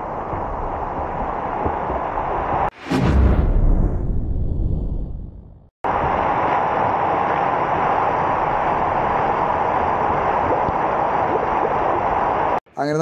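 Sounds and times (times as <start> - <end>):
water rushing over dam wall: 5.9 - 12.6.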